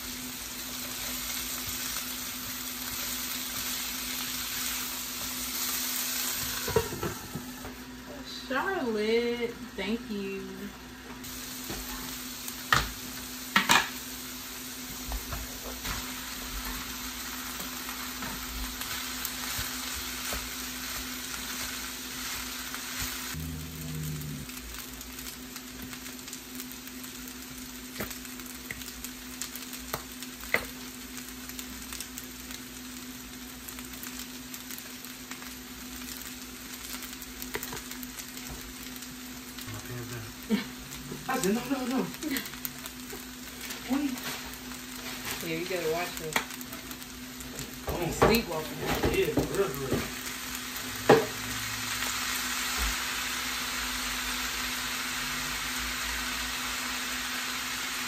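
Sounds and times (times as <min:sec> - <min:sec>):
vegetables and rice sizzling in pan: 0:00.0 - 0:58.0
steady low hum: 0:06.8 - 0:25.3.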